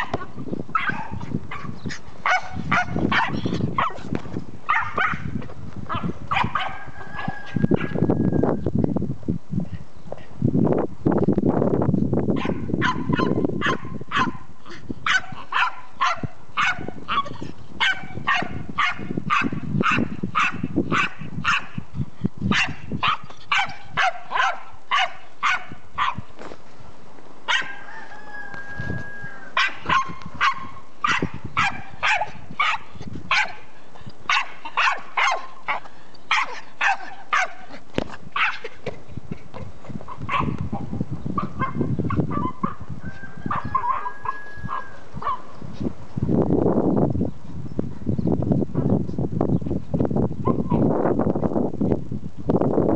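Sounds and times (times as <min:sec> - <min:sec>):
small dog yapping: 0:27.5 - 0:27.8, 0:34.3 - 0:37.7, 0:38.4 - 0:38.7.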